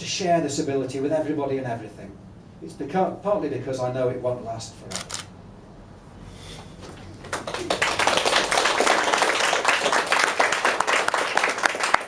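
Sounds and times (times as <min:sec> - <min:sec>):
audience applauding: 0:07.2 - 0:12.0.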